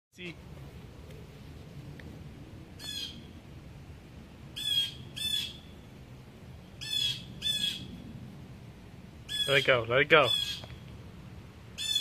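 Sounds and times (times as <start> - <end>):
blue jay harsh calls: 2.8 - 3.4, 4.5 - 5.8, 6.7 - 8.0, 9.2 - 10.9, 11.8 - 12.0.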